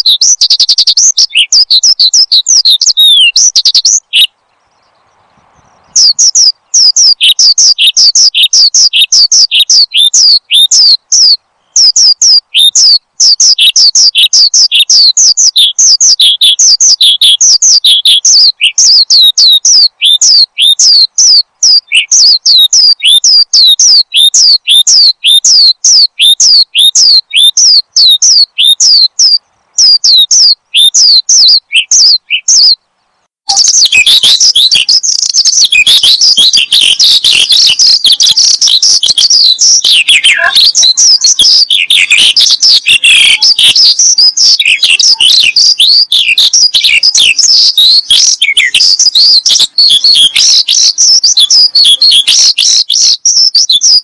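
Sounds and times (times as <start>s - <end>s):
lark singing: 0.0s - 32.9s, 33.5s - 54.0s.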